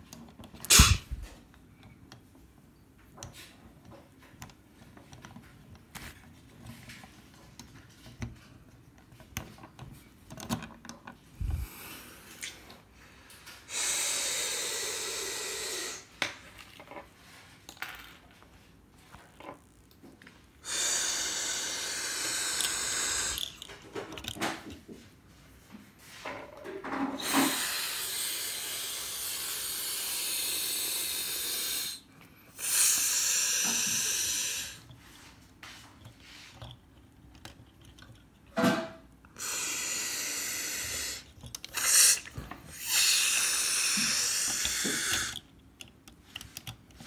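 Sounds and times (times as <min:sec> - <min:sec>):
loud steady hiss: 0:00.7 - 0:01.4, 0:13.6 - 0:16.1, 0:20.6 - 0:23.6, 0:27.2 - 0:34.8, 0:39.4 - 0:45.4
plastic parts clicking: 0:03.2 - 0:11.2, 0:22.6 - 0:24.8, 0:36.5 - 0:38.6, 0:41.2 - 0:42.5, 0:44.0 - 0:47.0.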